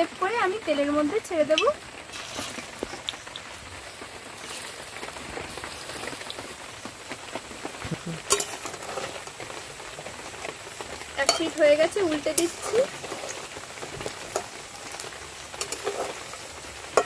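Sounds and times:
food frying in hot oil: 0.0s - 17.0s
metal spatula clinking pan: 8.3s - 9.0s, 11.2s - 13.3s, 15.6s - 16.2s.

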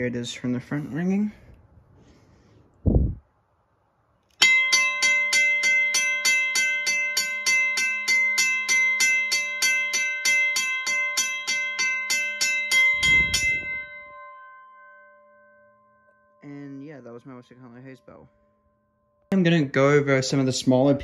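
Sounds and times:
railway crossing bell ringing: 4.4s - 19.8s.

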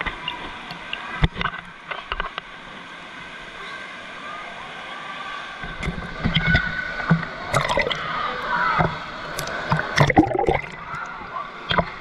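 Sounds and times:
faint voices: 0.0s - 12.0s
water sloshing and splashing: 5.6s - 12.0s.

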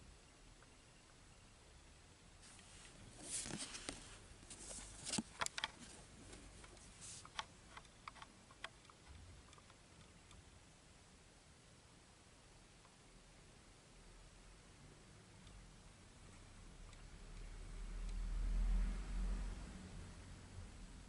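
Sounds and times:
trading cards handled and set down: 3.2s - 7.3s.

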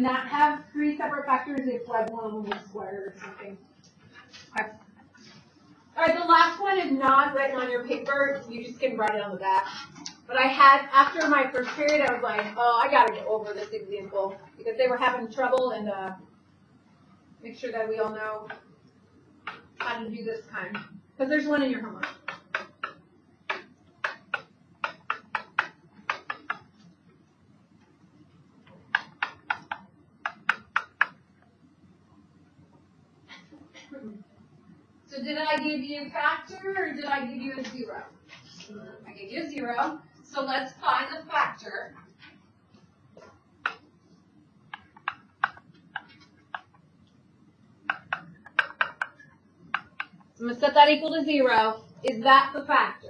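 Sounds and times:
stylus ticking on a screen: 9.0s - 9.3s, 19.4s - 27.2s, 28.6s - 31.5s, 43.3s - 47.2s, 47.8s - 50.4s.

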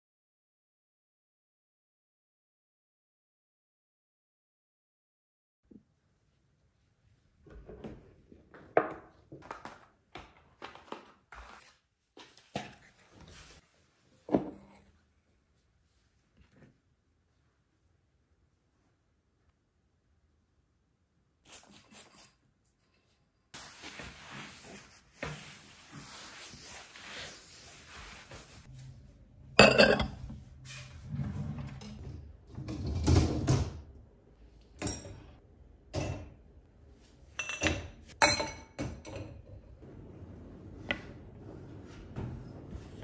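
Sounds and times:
ceramic dishes knocking and clinking: 29.6s - 30.2s, 37.4s - 39.4s.

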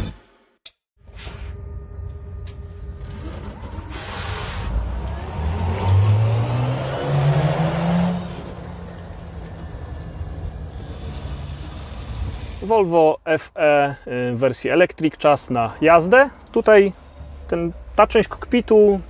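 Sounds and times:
tyre and road noise: 2.9s - 12.9s.

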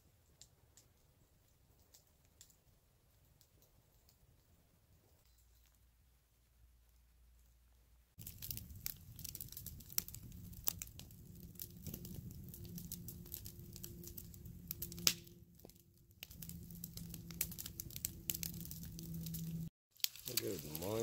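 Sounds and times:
campfire crackling and popping: 0.0s - 5.8s, 8.1s - 21.0s
low rush of flame: 8.2s - 21.0s.

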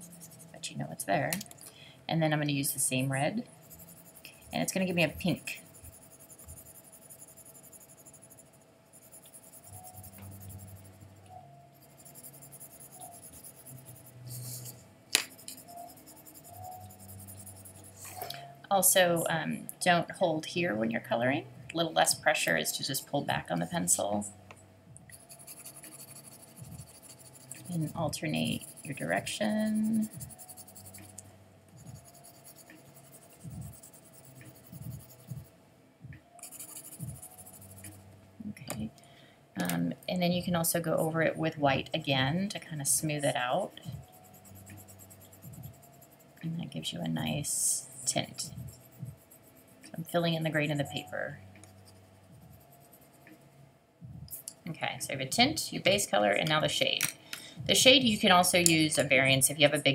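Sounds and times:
colored pencil scratching on paper: 0.0s - 0.8s, 2.6s - 18.2s, 25.1s - 35.5s, 36.4s - 38.0s, 40.4s - 53.5s.

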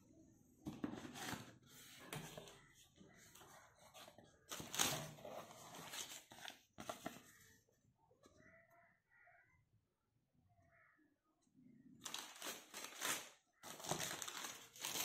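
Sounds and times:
cardboard and paper rustling: 0.7s - 7.5s, 12.0s - 15.0s.

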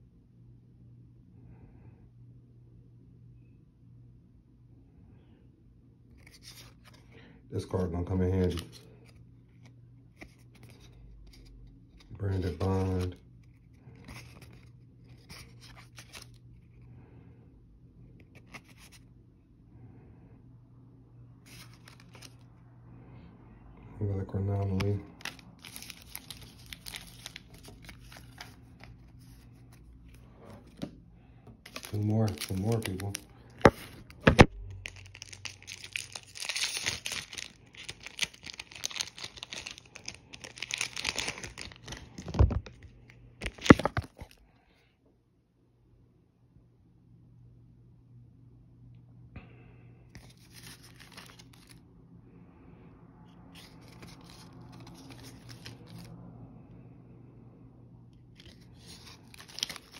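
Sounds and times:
faint low hum: 0.0s - 59.9s
foil wrapper crinkling and tearing: 21.5s - 22.4s, 24.6s - 29.6s, 31.7s - 44.4s, 50.2s - 51.8s, 53.6s - 56.1s, 58.4s - 59.9s.

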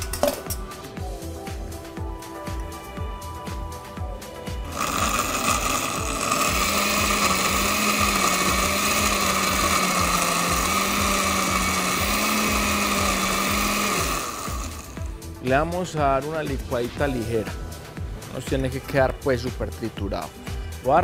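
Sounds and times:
blender motor running: 4.6s - 15.2s.

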